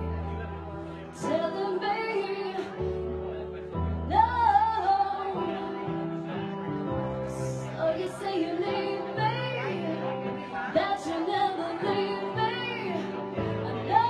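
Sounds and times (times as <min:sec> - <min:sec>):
woman singing a slow ballad: 0:01.2 - 0:03.0, 0:03.9 - 0:06.0, 0:07.3 - 0:14.0.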